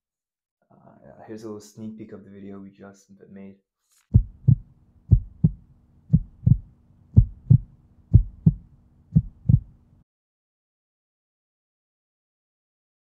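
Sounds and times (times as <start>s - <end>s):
heartbeat thumps: 4.1s - 9.8s
faint steady hum: 4.2s - 10.0s.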